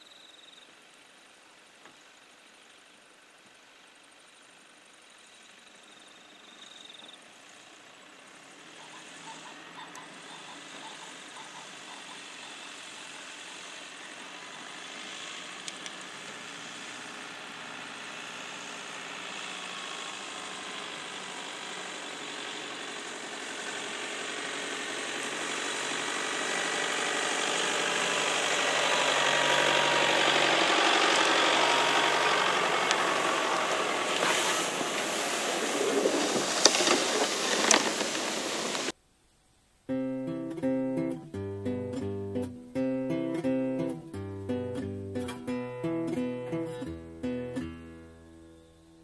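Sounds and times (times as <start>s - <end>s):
pickup truck engine driving by: 8.2s - 38.9s.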